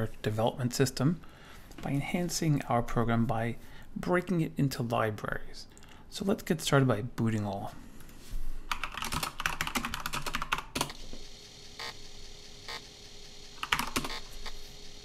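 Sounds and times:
faint steady hum: 0:00.0 - 0:15.0
computer keyboard typing: 0:08.7 - 0:11.0, 0:13.6 - 0:14.3.

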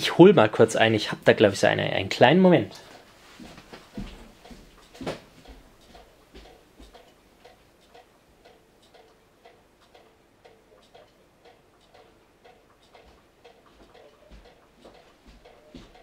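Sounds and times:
faint ringing ticks: 0:03.9 - 0:16.0.

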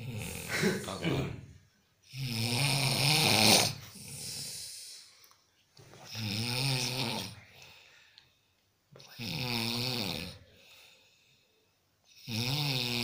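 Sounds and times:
man snoring: 0:00.0 - 0:00.8, 0:02.1 - 0:04.9, 0:06.1 - 0:07.4, 0:09.0 - 0:10.8, 0:12.1 - 0:13.0.

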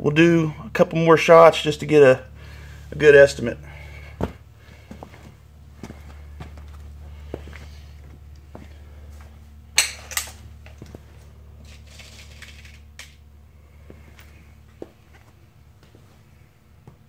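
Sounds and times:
steady low hum: 0:00.0 - 0:17.0
air rifle clicks and clacks: 0:09.8 - 0:10.8.

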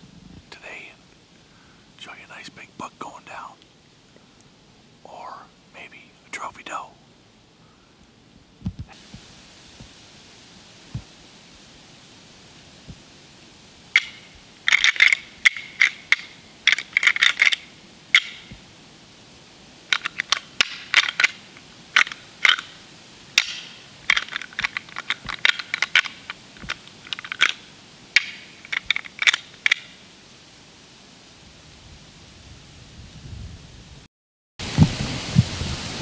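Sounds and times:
deer rattle clattering: 0:14.0 - 0:18.5, 0:19.9 - 0:30.0.

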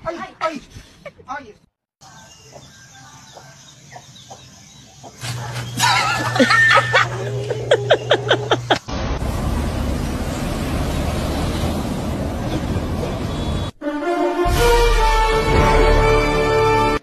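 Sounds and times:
chickens squawking and cackling: 0:02.1 - 0:08.9
people laughing: 0:05.8 - 0:08.9.

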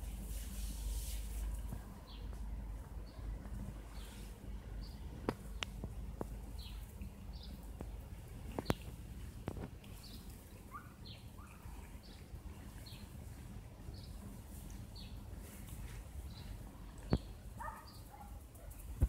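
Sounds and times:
low steady background noise: 0:00.0 - 0:19.0
small birds chirping: 0:02.0 - 0:19.0.

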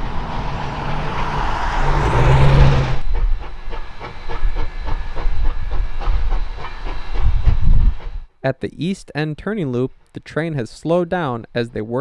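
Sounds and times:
steam locomotive hissing steam: 0:00.0 - 0:08.3
train wheels clicking over rail joints: 0:00.0 - 0:08.3.

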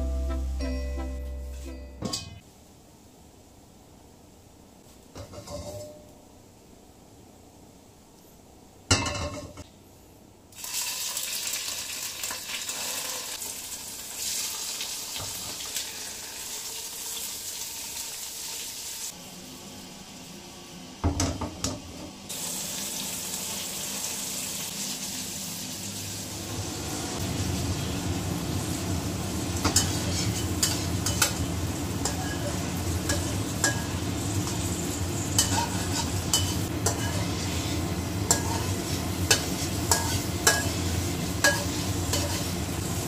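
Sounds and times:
frying in hot oil sizzle: 0:10.5 - 0:43.0.

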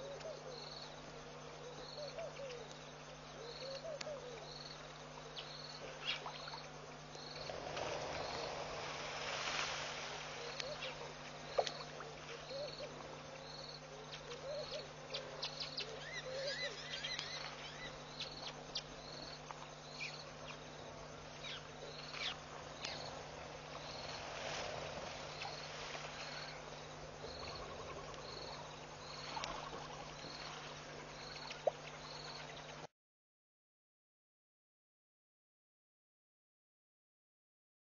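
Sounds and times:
insect chirping: 0:00.0 - 0:32.9
low hum: 0:00.0 - 0:32.9
warbling calls: 0:10.0 - 0:13.0, 0:14.0 - 0:18.9, 0:21.3 - 0:32.8.

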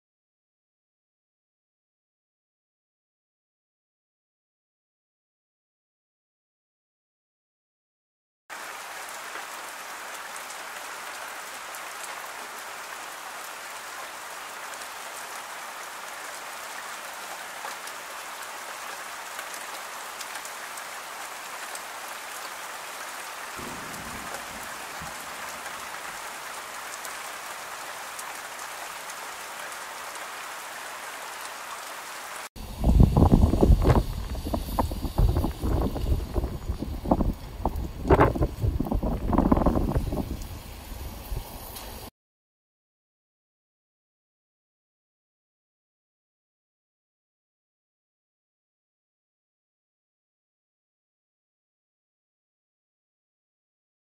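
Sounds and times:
steady rain falling: 0:08.5 - 0:42.1
gusty wind buffeting microphone: 0:32.6 - 0:42.1.

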